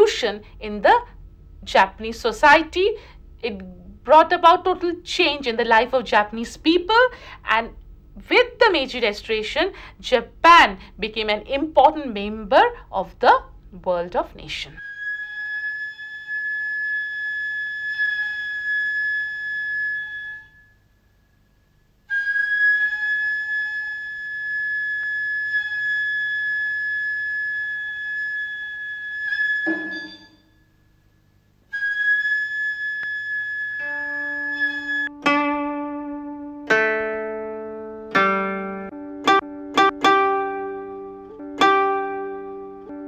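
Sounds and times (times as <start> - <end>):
plucked string notes: 29.7 - 30.4, 35.1 - 43.0.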